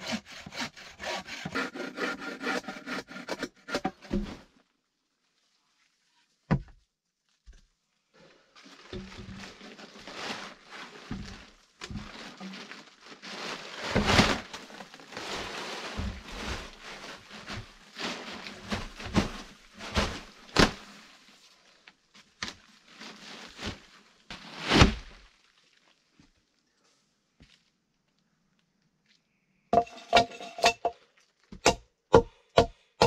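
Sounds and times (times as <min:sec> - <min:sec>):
plastic tarp rustling: 0:07.9 - 0:26.6
scraping and scuffing: 0:08.9 - 0:20.9.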